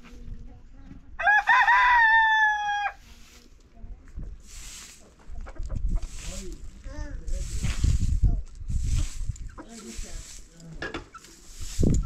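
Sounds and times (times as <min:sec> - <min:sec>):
straw broom sweeping dirt: 0:00.0 - 0:00.4, 0:01.2 - 0:12.0
rooster crowing: 0:01.2 - 0:03.0.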